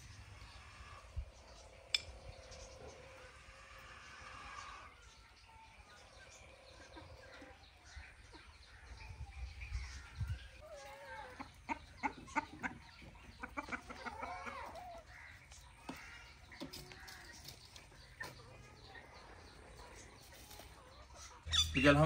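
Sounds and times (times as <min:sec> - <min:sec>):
hen clucking: 0:09.8 - 0:22.0.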